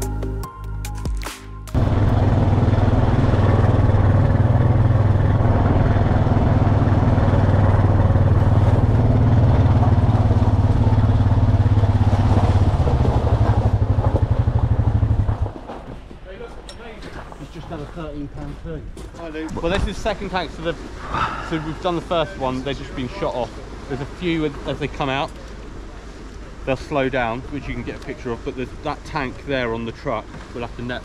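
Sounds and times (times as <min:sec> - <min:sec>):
truck engine running: 0:01.7 - 0:15.7.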